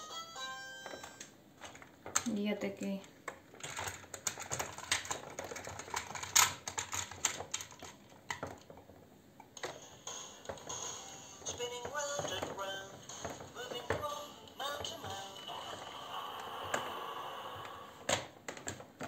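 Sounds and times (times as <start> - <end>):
plastic toy parts clattering: 1.6 - 2.4, 3.3 - 9.8.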